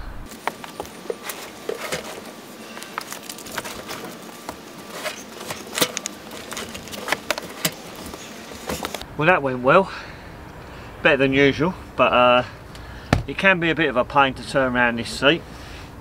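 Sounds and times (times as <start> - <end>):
upholstery and clothing rustling: 0.3 - 9.0.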